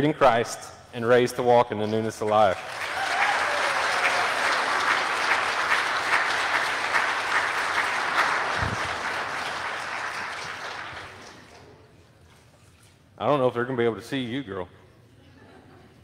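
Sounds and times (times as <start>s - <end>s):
congregation applauding: 2.2s - 11.8s.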